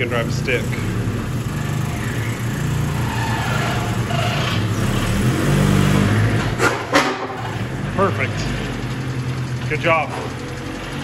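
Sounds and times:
car engine at low revs: 0.0s - 11.0s
sharp clunk: 6.6s - 7.4s.

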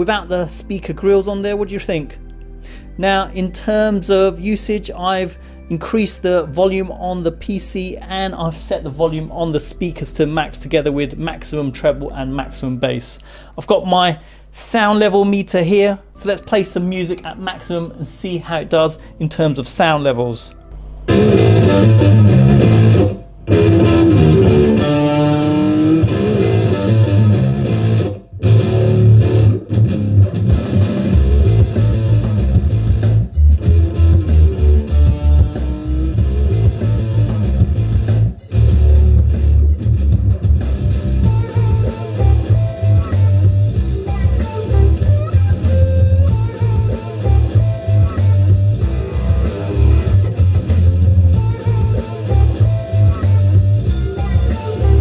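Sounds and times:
loud rock music through speakers: 21.1s - 55.0s.

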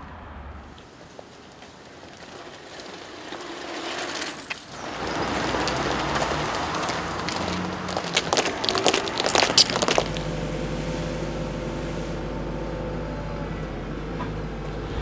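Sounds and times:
street noise: 0.0s - 15.0s
vehicle passing: 14.6s - 15.0s.

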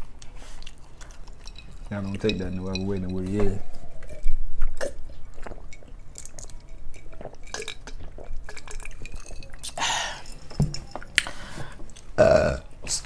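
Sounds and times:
shellfish picked apart and chewed: 0.0s - 12.2s
person gulping a drink: 4.0s - 12.7s.

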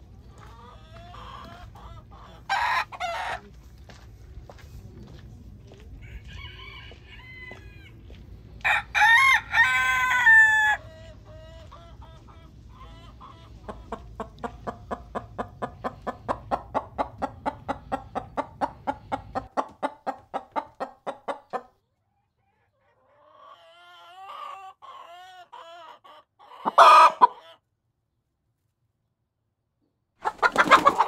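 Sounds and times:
hen clucking: 0.1s - 3.6s, 10.1s - 27.6s, 30.2s - 31.0s
rooster crowing: 6.0s - 7.9s, 8.6s - 10.8s, 26.6s - 27.4s.

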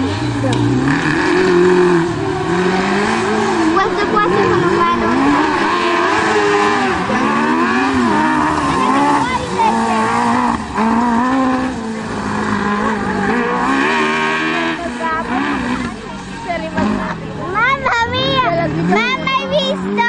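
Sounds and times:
small engine revving: 0.0s - 20.0s.

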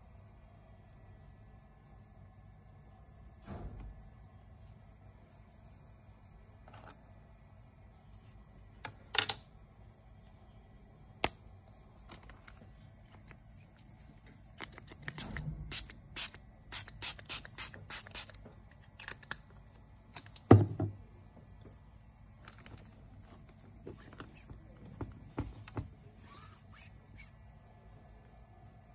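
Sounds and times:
loud thump: 3.4s - 4.1s.

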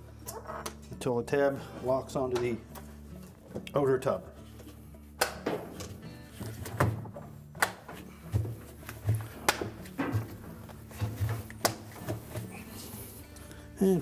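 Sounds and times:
tub cover tabs snapping into place: 5.2s - 12.4s.

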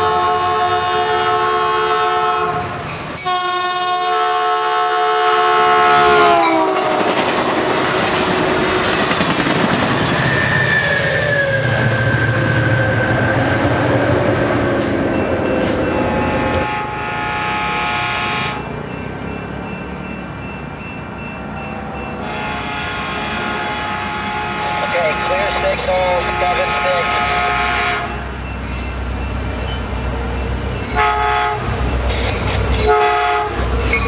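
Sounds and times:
train horn chord: 0.0s - 2.6s, 3.2s - 7.1s, 16.2s - 18.7s, 22.2s - 28.2s, 30.9s - 31.7s, 32.9s - 33.6s
train wheels roaring on rails: 0.0s - 34.0s.

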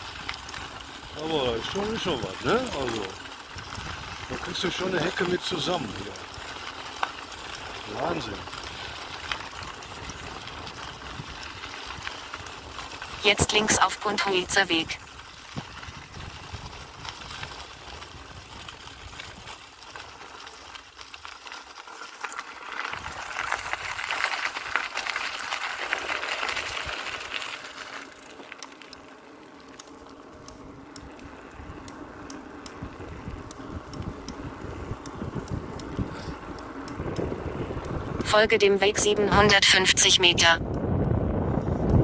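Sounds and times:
bicycle tyres and wind rushing: 0.0s - 42.0s.

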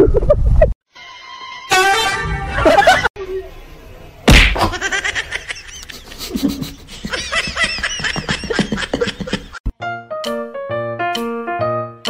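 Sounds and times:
person giggling: 4.6s - 9.7s.

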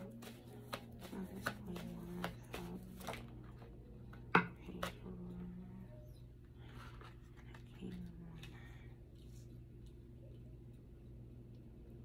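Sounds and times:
cards snapping: 0.0s - 3.4s
low steady hum: 0.0s - 12.0s.

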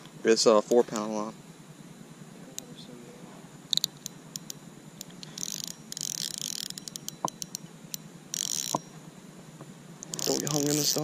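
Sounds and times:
sharp reel clicks: 3.7s - 8.9s, 10.0s - 11.0s
fishing reel drag buzzing: 3.7s - 9.0s, 10.0s - 11.0s.

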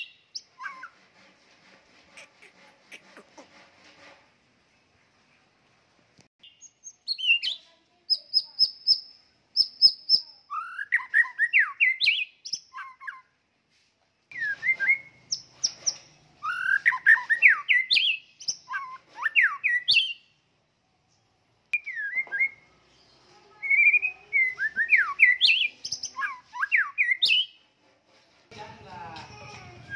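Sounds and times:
bird singing whistled phrases: 0.0s - 1.0s, 6.4s - 13.4s, 14.3s - 15.8s, 16.4s - 20.3s, 21.8s - 22.8s, 23.6s - 27.6s.

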